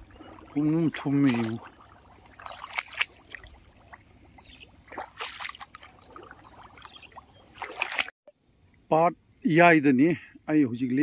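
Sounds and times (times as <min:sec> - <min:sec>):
footsteps splashing in shallow water: 0:00.0 - 0:08.1.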